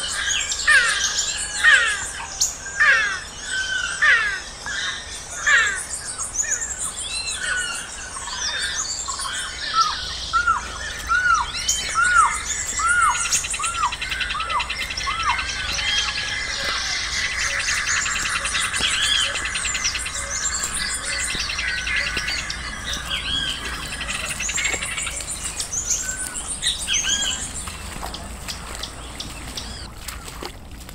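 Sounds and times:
arching whistled bird notes: 0:00.0 - 0:30.3
overlapping bird chirps: 0:04.3 - 0:30.4
long rapid bird trill: 0:06.6 - 0:29.9.

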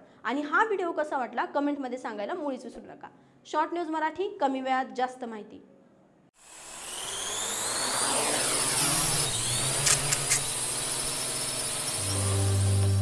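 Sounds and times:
deep sustained bass tone: 0:12.0 - 0:13.0.

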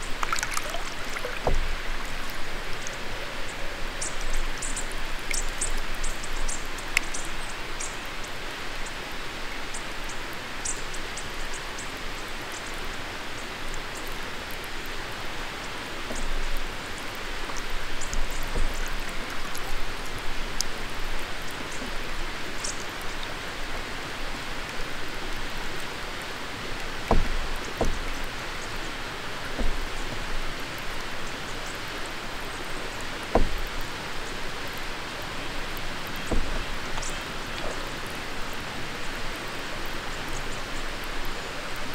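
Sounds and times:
water drips: 0:00.0 - 0:08.0, 0:15.6 - 0:41.3
water trickling along canoe hull: 0:00.0 - 0:41.9
soft knocks: 0:27.1 - 0:28.2, 0:29.6 - 0:30.2, 0:33.3 - 0:33.8, 0:36.2 - 0:37.1.

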